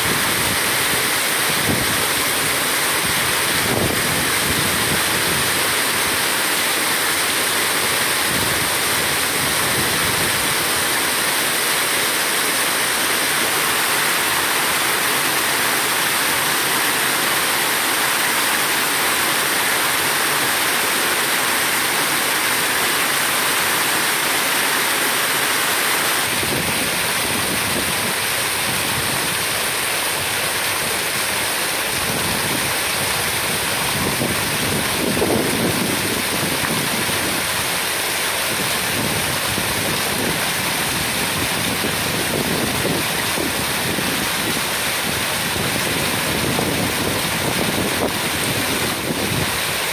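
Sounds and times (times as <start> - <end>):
water rushing over weir: 0.0 - 49.9.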